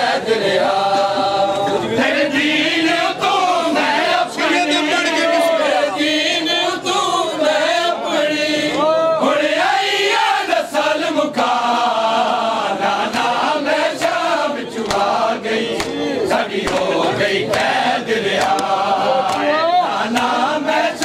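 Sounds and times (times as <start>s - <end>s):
men chanting a lament: 0.0s - 21.0s
hands slapping bare chests: 14.0s - 15.2s, 15.8s - 16.0s, 16.6s - 20.4s.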